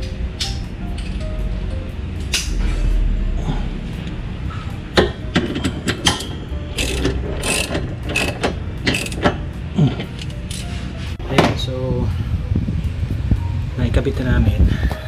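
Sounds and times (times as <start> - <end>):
ratchet wrench clicking: 5.6 - 9.4, 10.1 - 10.7.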